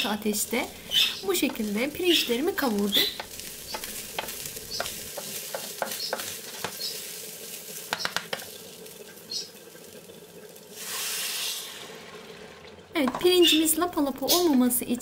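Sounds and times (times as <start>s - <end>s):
rice sizzling in a frying pan: 0.0s - 14.7s
spoon clicking against pan: 7.9s - 8.5s.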